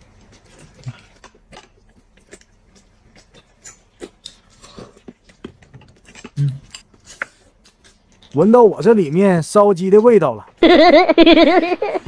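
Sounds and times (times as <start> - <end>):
chewing and smacking: 0.0 - 8.5.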